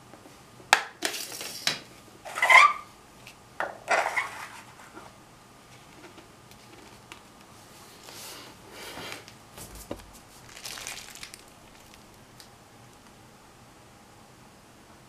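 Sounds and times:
rustling: 0:09.6 - 0:12.5.

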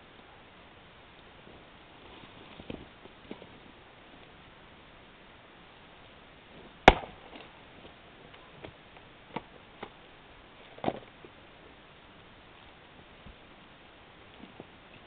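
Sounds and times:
maul striking steel wedge: 0:06.9 - 0:07.2.

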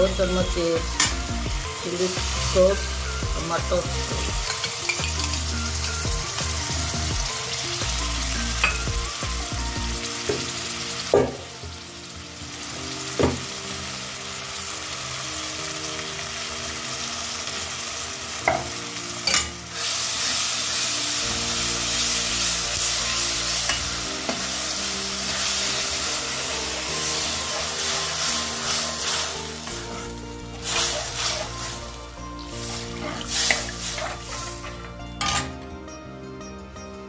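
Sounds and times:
vegetables sizzling in oil: 0:00.0 - 0:35.6
spoon stirring: 0:25.3 - 0:31.9, 0:32.6 - 0:34.8.

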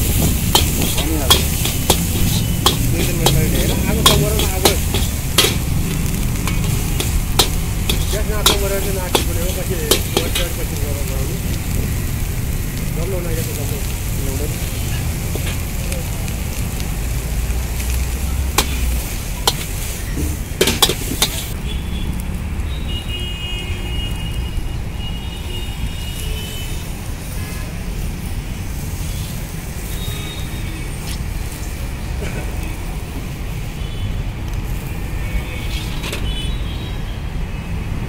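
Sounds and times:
steel ladle clanging on wok: 0:00.0 - 0:10.8, 0:18.5 - 0:21.6
gas burner rumble: 0:00.0 - 0:21.6
noodles sizzling in a wok: 0:00.0 - 0:21.7, 0:25.6 - 0:36.6.

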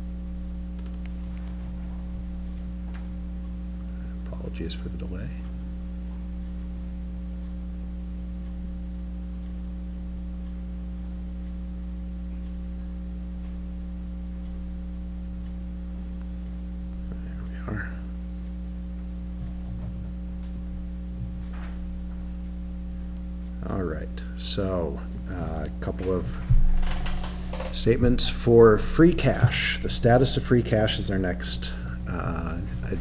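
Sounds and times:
electrical mains hum: 0:00.0 - 0:33.0.

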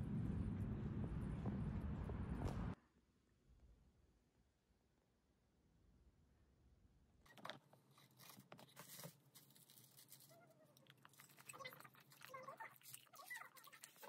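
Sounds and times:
crunching and chewing food: 0:08.0 - 0:14.0.

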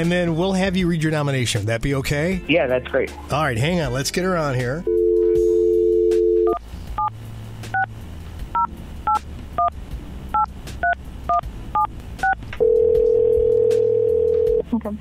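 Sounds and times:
telephone ringback tone: 0:04.9 - 0:06.6, 0:12.6 - 0:14.6.

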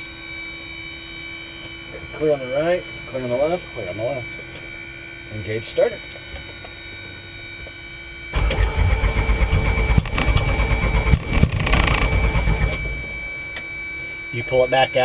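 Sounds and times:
engine starter cranking: 0:08.3 - 0:13.2.

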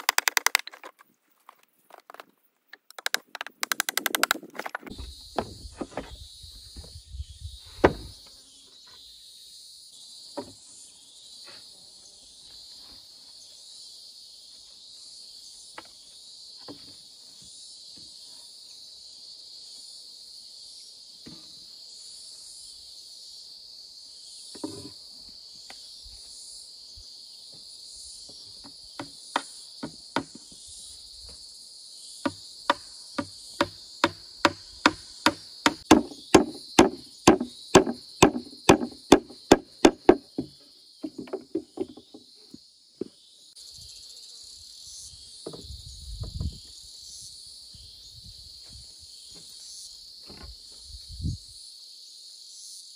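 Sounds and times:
wooden knocks: 0:00.0 - 0:02.2, 0:02.8 - 0:06.2, 0:32.7 - 0:42.3
insects chorus: 0:00.0 - 0:52.9
hammer blows on wood: 0:32.3 - 0:41.6.

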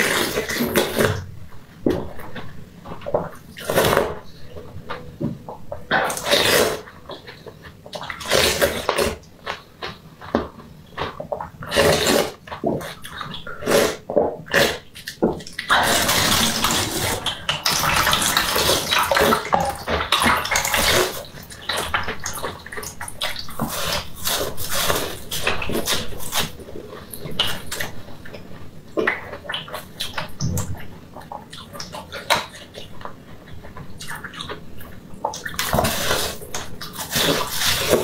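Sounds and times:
slurping and sucking ice: 0:06.1 - 0:06.9, 0:08.2 - 0:09.2, 0:11.6 - 0:12.4, 0:13.6 - 0:14.9, 0:15.7 - 0:19.5, 0:23.6 - 0:26.5, 0:35.6 - 0:38.0.

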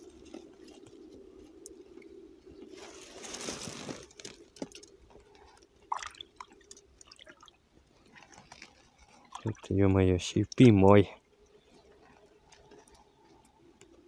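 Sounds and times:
plastic tarp rustling: 0:02.7 - 0:04.7.

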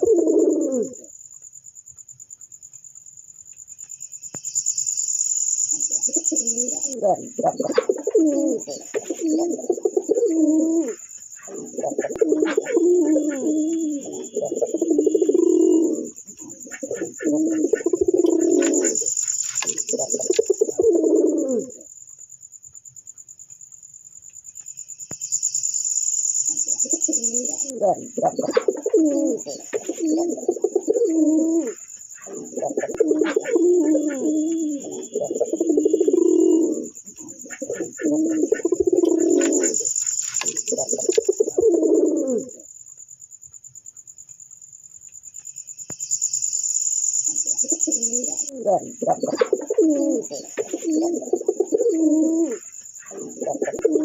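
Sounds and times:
pigeons cooing: 0:00.0 - 0:01.1, 0:05.7 - 0:21.9, 0:26.5 - 0:42.7, 0:47.3 - 0:54.0.

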